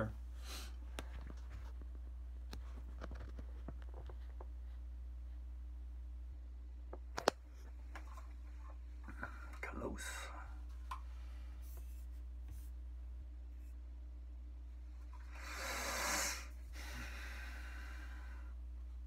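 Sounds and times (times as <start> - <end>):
low electrical hum: 0.0 - 19.0
man breathing out: 15.3 - 18.5.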